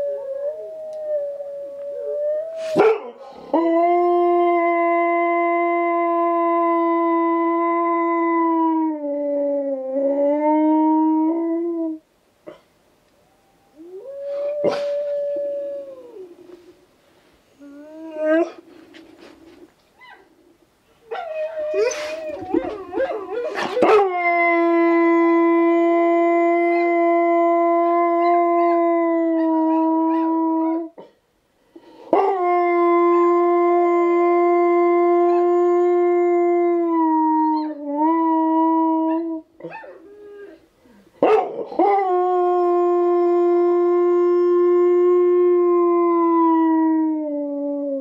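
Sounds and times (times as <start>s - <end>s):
dog howling: 21.1s - 31.0s.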